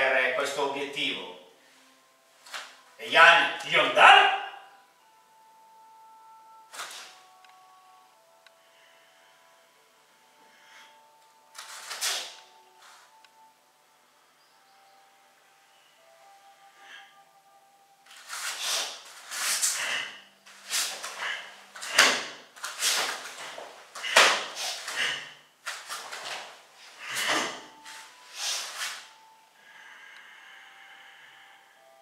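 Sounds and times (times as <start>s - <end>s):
uniform fabric snapping and whooshing: 6.7s - 7.3s, 11.5s - 12.6s, 18.1s - 29.1s.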